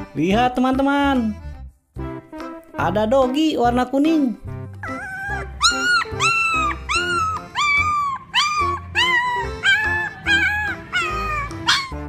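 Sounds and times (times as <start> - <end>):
background music: 0.0 - 12.0
small dog yipping: 4.8 - 12.0.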